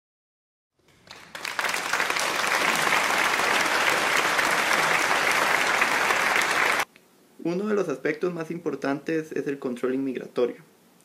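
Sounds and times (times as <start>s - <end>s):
crowd applauding: 0.9s - 6.9s.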